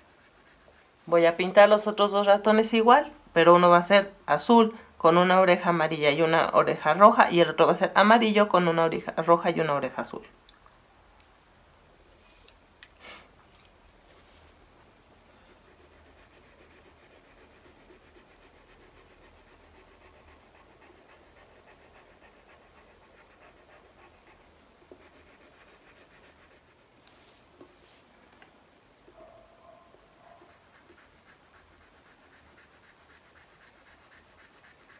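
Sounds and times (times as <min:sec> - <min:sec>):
pencil scratching on paper: 0:00.0 - 0:02.0, 0:15.6 - 0:28.1, 0:30.2 - 0:34.9.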